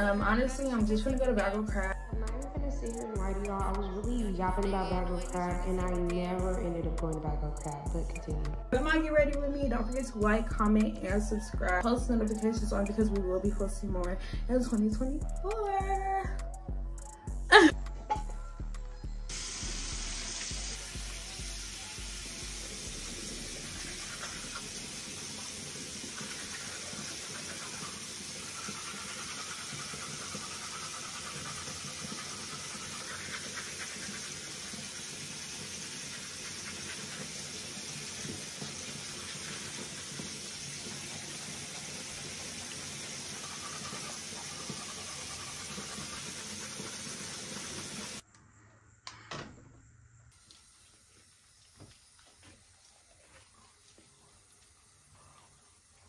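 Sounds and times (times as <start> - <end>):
water running from a tap: 0.0 - 15.0, 19.3 - 48.2, 50.4 - 56.0.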